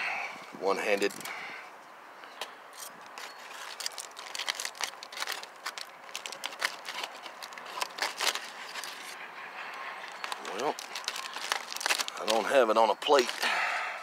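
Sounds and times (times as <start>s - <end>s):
foil crinkling and crackling: 3.2s - 9.2s, 10.0s - 13.7s.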